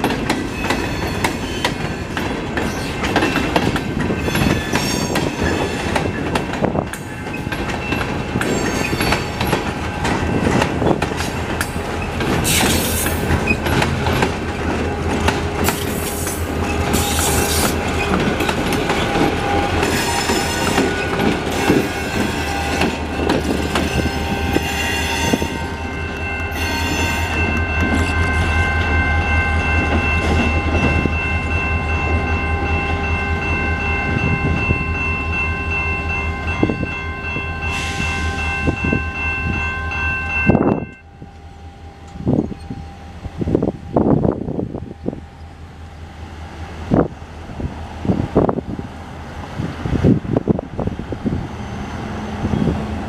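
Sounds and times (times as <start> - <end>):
train wheels clicking over rail joints: 0.0 - 25.5
high wheel squeal: 19.1 - 25.8, 26.5 - 27.4, 51.3 - 52.8.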